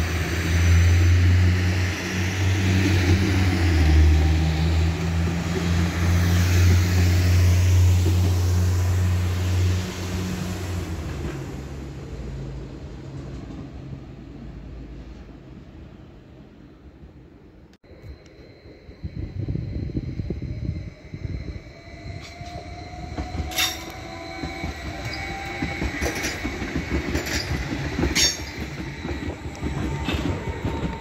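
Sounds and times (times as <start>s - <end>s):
diesel railcar engines droning: 0.0s - 31.0s
high whine: 17.8s - 26.5s.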